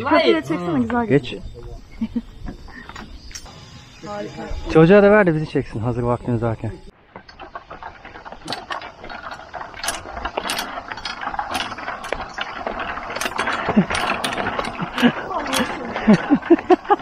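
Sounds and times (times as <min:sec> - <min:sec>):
footsteps on wooden planks: 0:07.0 - 0:17.0.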